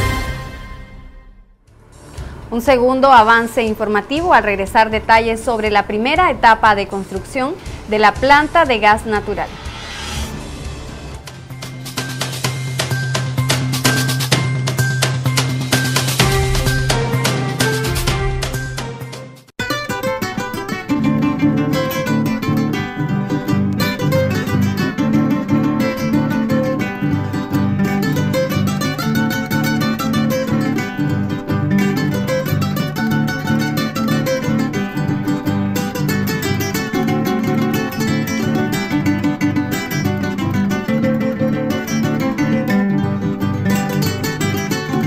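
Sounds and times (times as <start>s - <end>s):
strummed acoustic guitar music: 11.2s - 45.0s.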